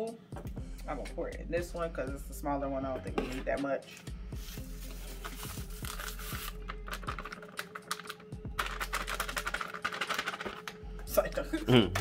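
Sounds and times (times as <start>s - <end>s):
crumbs pouring into a bowl: 4.4s - 10.7s.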